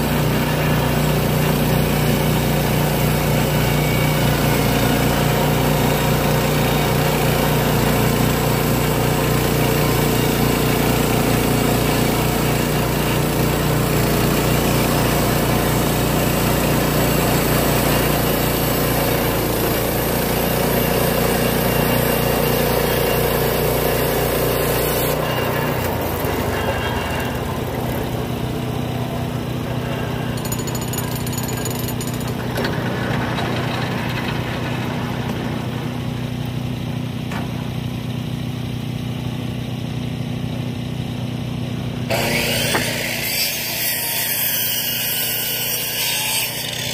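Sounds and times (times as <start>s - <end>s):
band blade sawing timber: 0.0s - 30.5s, 42.1s - 46.9s.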